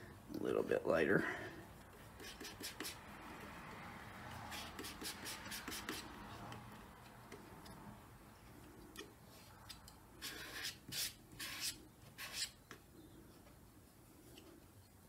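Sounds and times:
colour stick scratching gritty panel: 1.9s - 6.6s, 10.2s - 12.6s.

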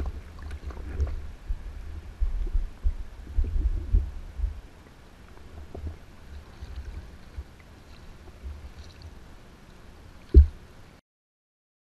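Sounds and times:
kayak paddle thumps: 10.3s - 10.6s.

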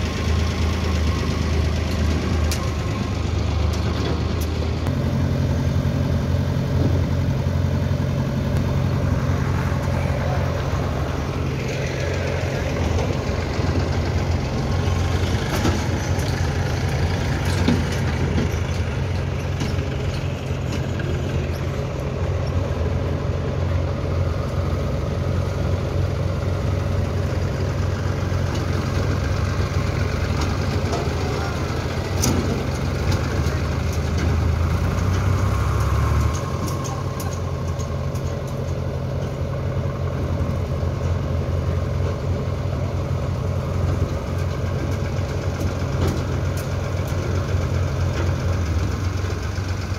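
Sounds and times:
tractor diesel engine under load: 0.0s - 49.9s.

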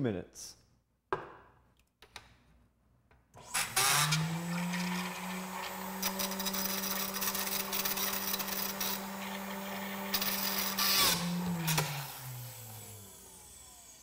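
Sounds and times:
shake mixer motor rattling: 3.4s - 13.9s.

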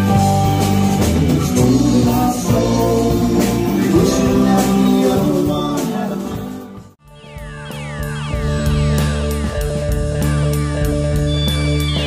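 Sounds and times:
drum kit: 0.0s - 12.0s
electric bass: 0.0s - 12.0s
electric guitars: 0.0s - 12.0s
man singing: 1.4s - 6.9s.

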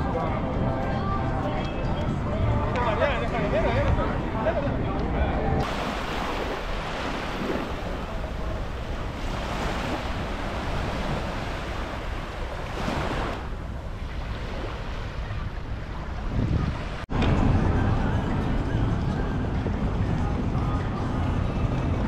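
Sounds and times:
wind rumbling on microphone: 3.8s - 22.0s
surf washing onto beach: 5.6s - 17.1s.

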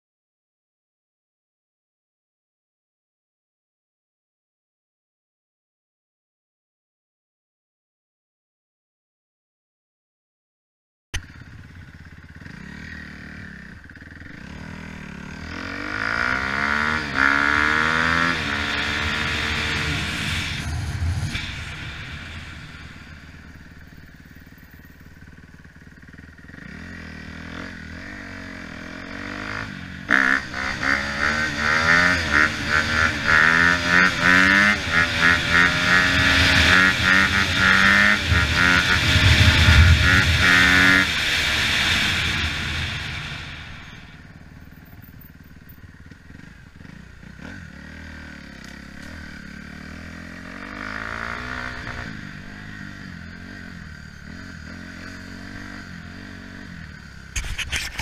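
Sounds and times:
dirt bike engine revving: 11.2s - 24.0s, 25.3s - 44.7s, 46.3s - 58.0s.

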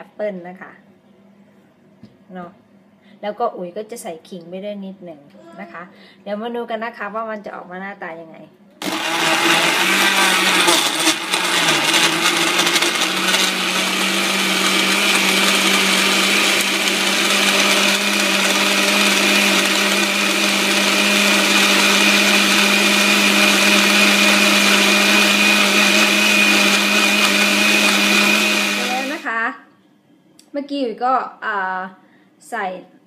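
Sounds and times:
blender motor whining: 8.8s - 29.3s.

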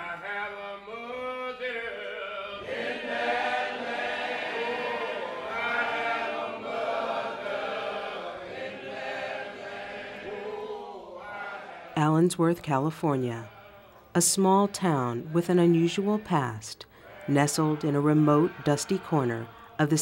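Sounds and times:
choir singing held notes: 0.0s - 20.0s.

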